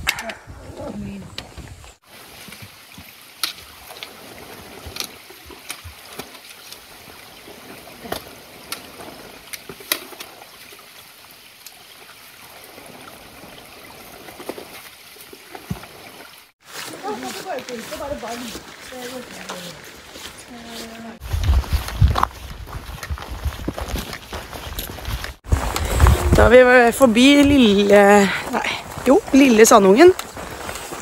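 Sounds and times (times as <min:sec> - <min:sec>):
footsteps on rocky trail: 0:16.6 - 0:31.0.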